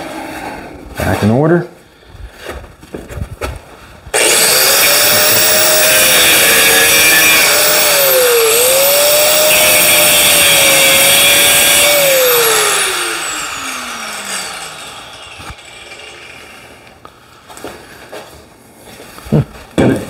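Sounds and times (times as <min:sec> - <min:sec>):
electric grinder on sheet metal: 0:04.2 - 0:17.0.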